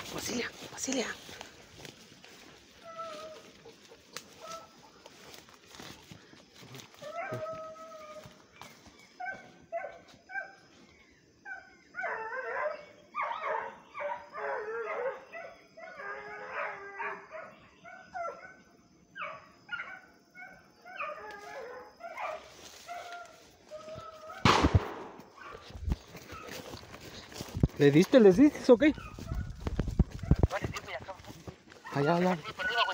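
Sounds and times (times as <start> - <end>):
dogs baying and yelping: 0.0 - 24.5, 25.2 - 30.7, 31.3 - 32.9
loud bang: 24.4 - 25.2.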